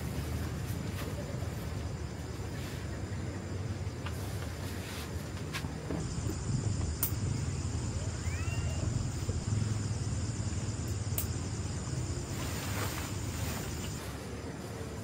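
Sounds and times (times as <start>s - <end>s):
low rumble: 5.9s - 14.0s
sharp clicks: 10.9s - 11.4s.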